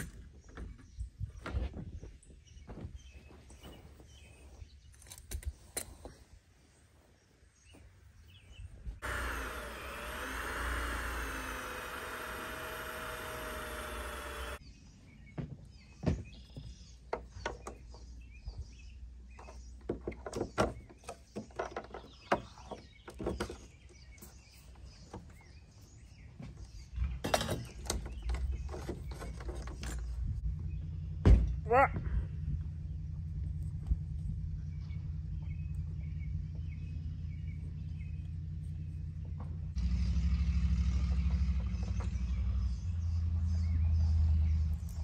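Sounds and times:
motor whining: 9.0s - 14.6s.

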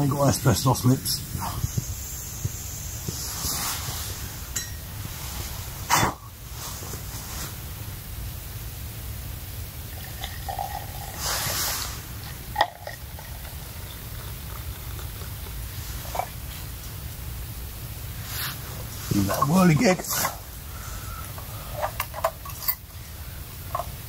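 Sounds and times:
liquid pouring hiss: 0.2s - 24.0s
steady low rumble: 11.9s - 24.0s.

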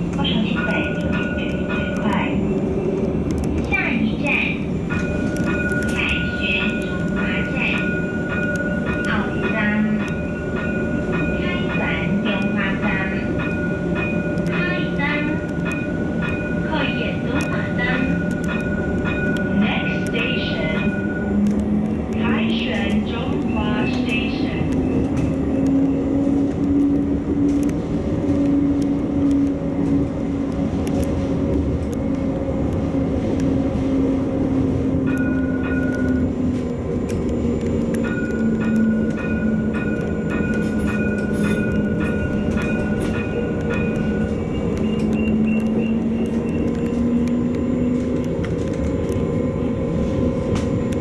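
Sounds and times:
tram motor whine: 0.0s - 51.0s
tram running noise: 0.0s - 51.0s
regular ticking: 0.1s - 33.6s.

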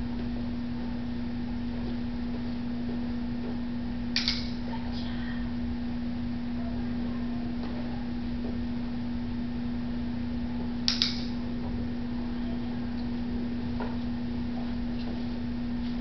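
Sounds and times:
low electrical hum: 0.0s - 16.0s
sharp double click: 4.2s - 4.6s, 10.9s - 11.4s.

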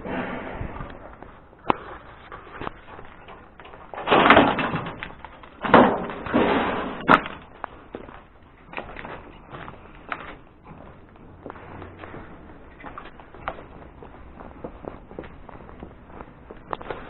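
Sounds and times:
scuffs and scrapes of climbing: 0.0s - 3.9s.

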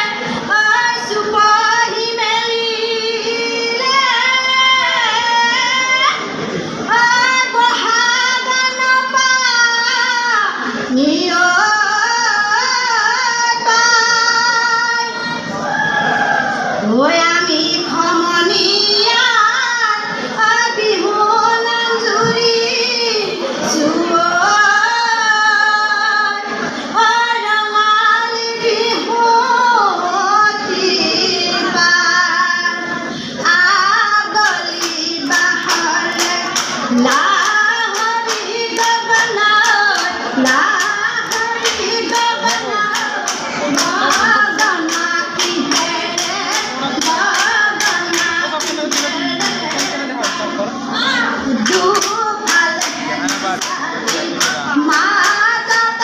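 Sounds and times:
women singing together: 0.0s - 56.0s
hands clapping a beat: 34.4s - 50.5s, 51.6s - 56.0s.

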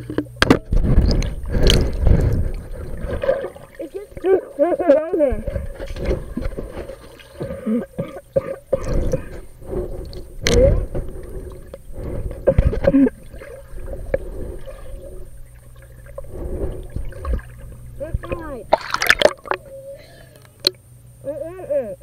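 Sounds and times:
underwater gurgling and sloshing: 0.0s - 20.8s
low hum: 0.0s - 21.8s.

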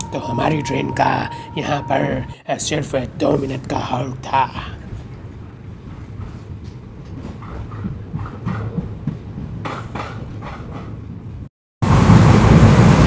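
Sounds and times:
low hum: 0.0s - 9.6s.

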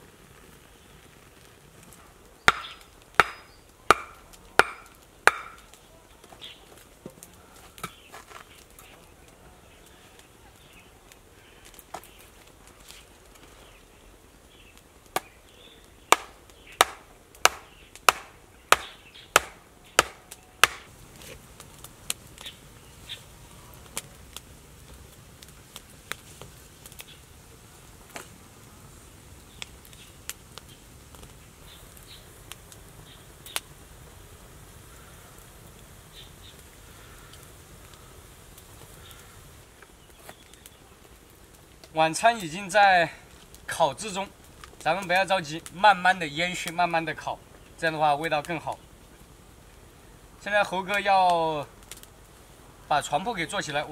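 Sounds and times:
wood chopping blows: 2.5s - 6.4s, 15.1s - 15.3s, 16.1s - 21.4s.

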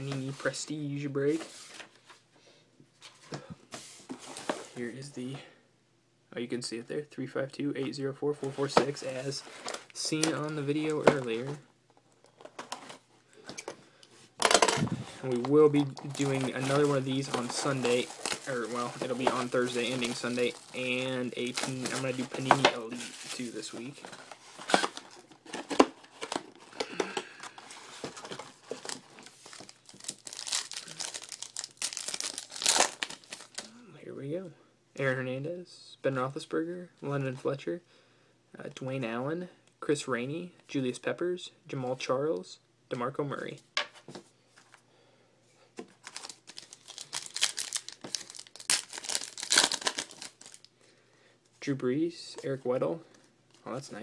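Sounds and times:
plastic wrapper crinkling and tearing: 15.3s - 33.7s, 46.0s - 50.7s.

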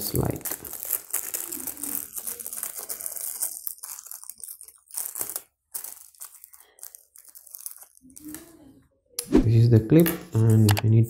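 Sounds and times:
plastic wrapping crinkling: 0.0s - 8.8s.

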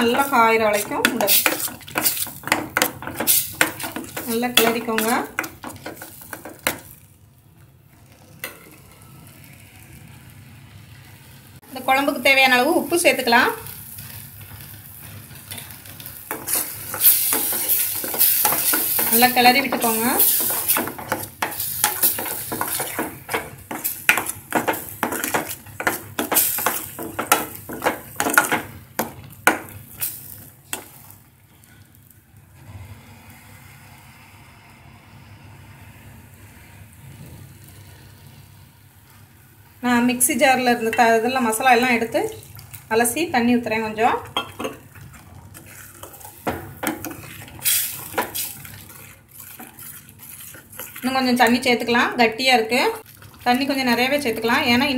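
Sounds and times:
spoon scraping metal pan: 0.0s - 6.9s, 16.3s - 30.9s
paste sizzling in oil: 0.0s - 7.0s, 8.4s - 31.8s, 44.4s - 54.9s.

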